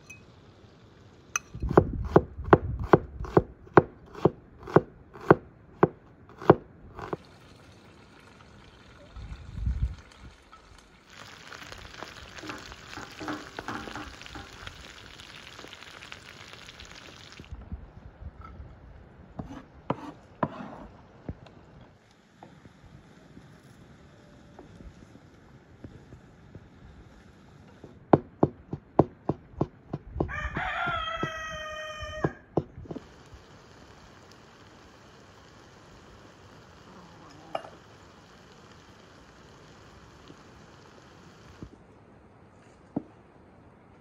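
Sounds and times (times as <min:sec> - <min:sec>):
knife chopping on wooden board: 0:01.7 - 0:07.2
chicken and onion sizzling in butter: 0:07.0 - 0:17.6, 0:32.8 - 0:41.7
wooden spatula scraping: 0:12.4 - 0:14.7, 0:19.4 - 0:21.0
rooster crowing: 0:30.2 - 0:32.5.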